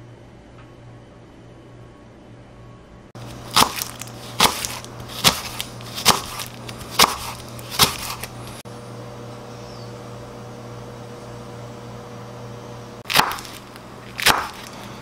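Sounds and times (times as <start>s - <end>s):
knife chopping on wooden board: 3.2s - 8.4s, 13.1s - 14.8s.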